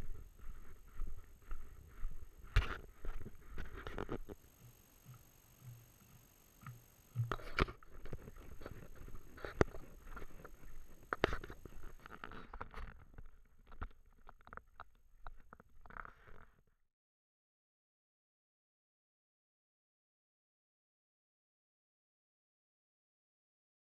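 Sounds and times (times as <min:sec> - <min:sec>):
camera and rucksack clicks and rustles: 0:00.0 - 0:04.4, 0:05.1 - 0:16.6
footsteps on gravel: 0:00.0 - 0:04.4, 0:07.2 - 0:12.6.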